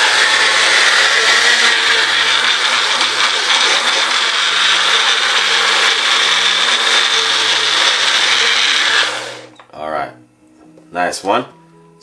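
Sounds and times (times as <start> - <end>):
blender running: 0.0 - 9.5.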